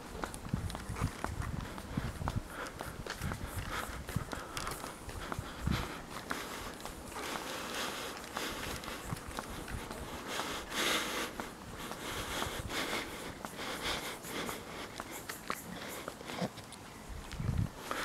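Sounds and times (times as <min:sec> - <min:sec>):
footsteps on asphalt: 0:00.0 - 0:18.0
hiss: 0:14.0 - 0:16.2.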